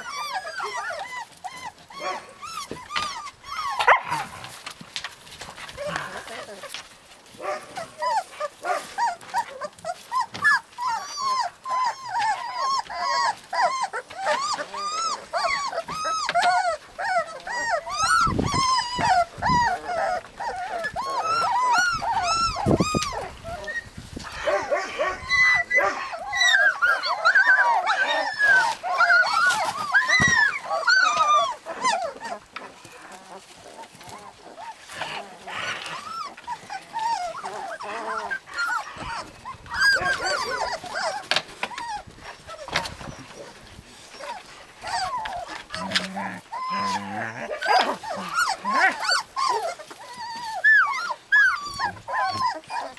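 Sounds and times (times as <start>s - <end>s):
puppies whining and yipping: 0.0s - 52.9s.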